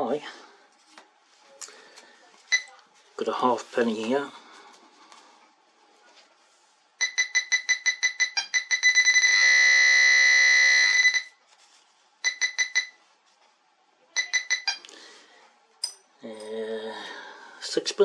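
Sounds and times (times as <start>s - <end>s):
pinpointer beeping: 7.0s - 11.3s, 12.2s - 13.0s, 14.2s - 14.9s.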